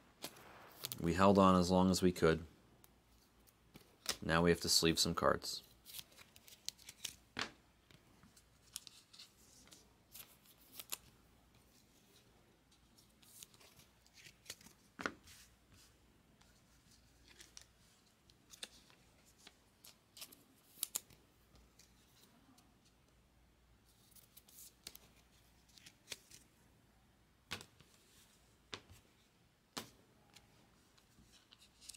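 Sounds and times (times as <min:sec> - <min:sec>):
cards sliding into plastic sleeves: 0:05.6 - 0:07.6, 0:08.3 - 0:22.4, 0:24.0 - 0:26.5, 0:29.7 - 0:31.9.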